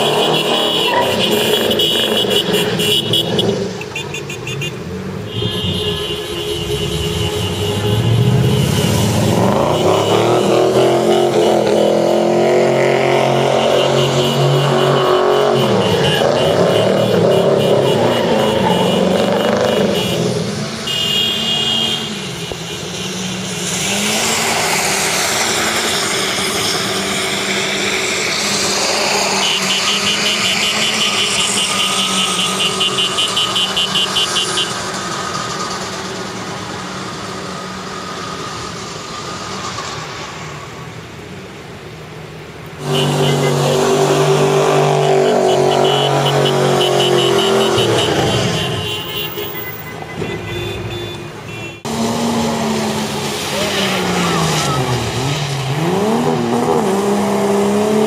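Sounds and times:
engines revving: 0.0s - 58.0s
tyres spinning on wet pavement: 22.7s - 48.6s.

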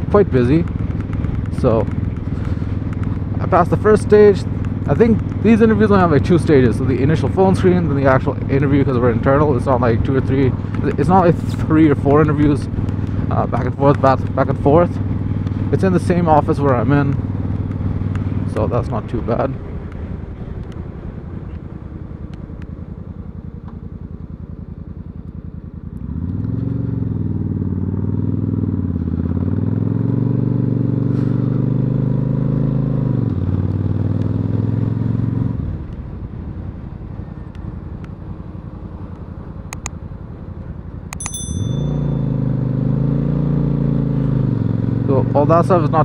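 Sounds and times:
motorcycle engine revving: 25.8s - 35.9s, 41.4s - 46.0s.

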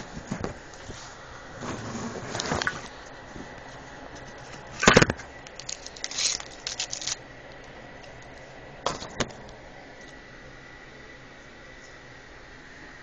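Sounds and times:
handling clicks and rustles: 0.0s - 9.6s.

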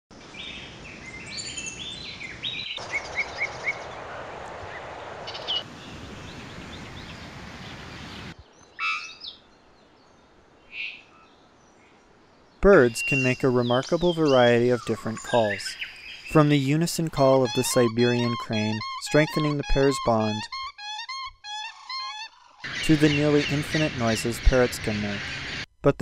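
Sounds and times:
outdoor background noise: 0.1s - 20.3s
birds singing and calling: 0.2s - 4.1s, 5.3s - 25.6s.

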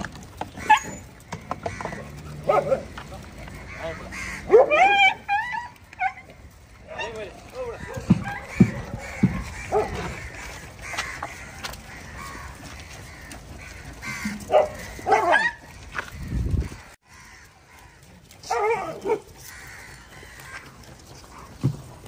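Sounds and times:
dog barking: 2.4s - 2.9s, 4.4s - 6.2s, 9.7s - 10.0s, 14.5s - 15.6s, 18.5s - 19.3s.

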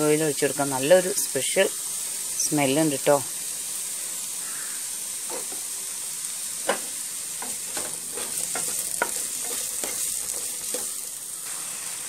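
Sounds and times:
mushrooms sizzling in a pan: 0.0s - 12.0s
spatula scraping a pan: 6.7s - 11.7s.

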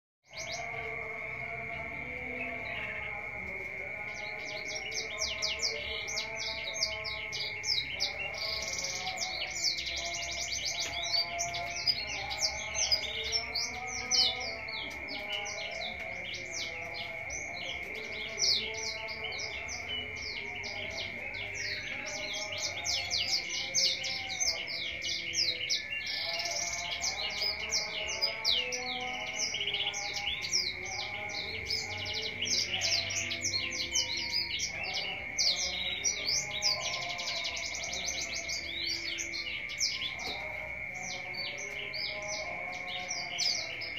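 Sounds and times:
songbird chirping and trilling: 0.2s - 43.9s.

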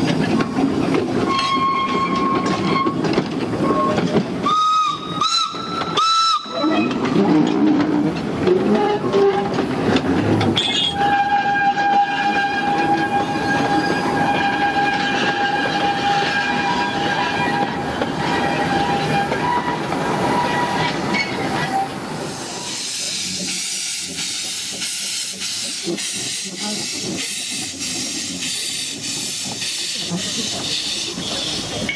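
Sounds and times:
train wagons rumbling on track: 0.0s - 31.9s
steam hissing: 21.8s - 31.9s.

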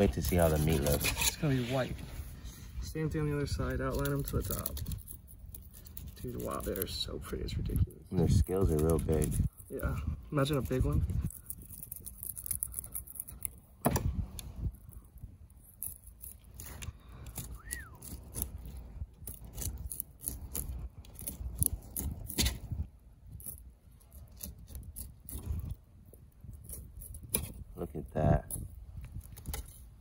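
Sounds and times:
knife scraping fish scales: 0.0s - 2.7s.

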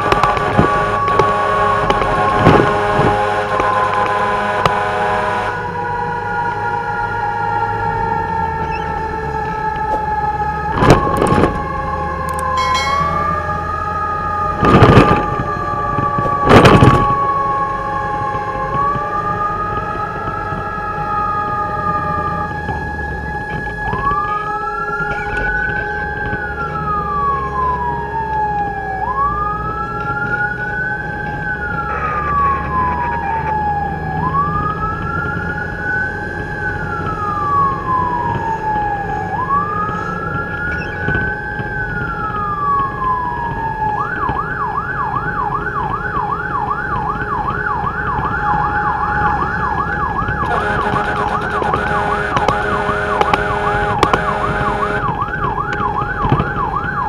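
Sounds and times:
steady tone: 12.4s - 15.2s
electronic siren wailing and yelping: 30.2s - 57.0s.

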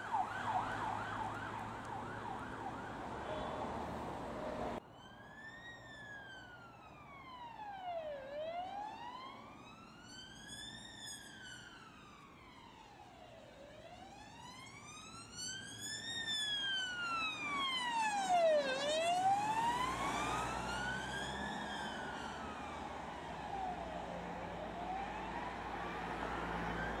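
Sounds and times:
car engine and tyres: 0.0s - 4.8s, 15.7s - 27.0s
police siren wailing: 0.0s - 27.0s.

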